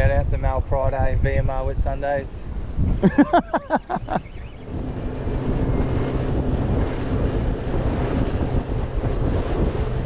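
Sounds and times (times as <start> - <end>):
choppy water: 0.0 - 10.0
wind buffeting microphone: 0.0 - 10.0
boat engine droning: 2.5 - 10.0.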